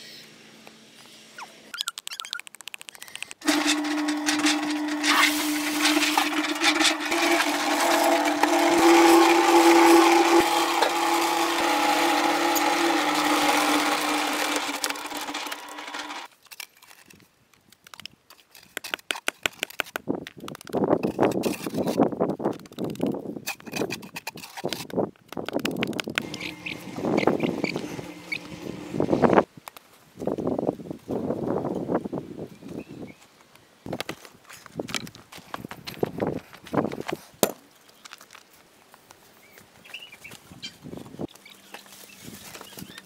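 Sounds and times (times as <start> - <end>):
scratching: 1.9 - 16.9, 25.8 - 29.4
motor-driven tool humming: 3.4 - 16.3, 26.2 - 29.4.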